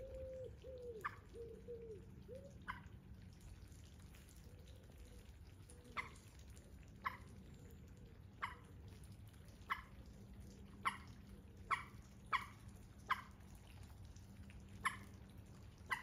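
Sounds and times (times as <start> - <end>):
water drops plinking into pond: 0.0 - 16.0.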